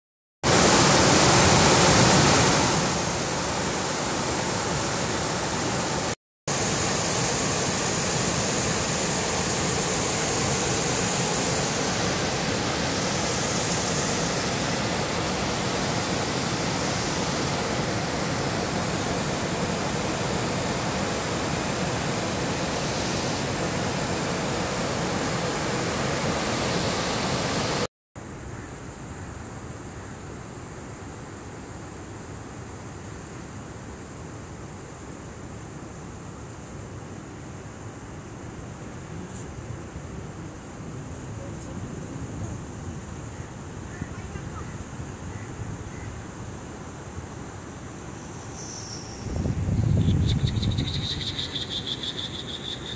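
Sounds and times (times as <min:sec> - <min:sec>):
water rushing through spillway: 0:00.5 - 0:27.9.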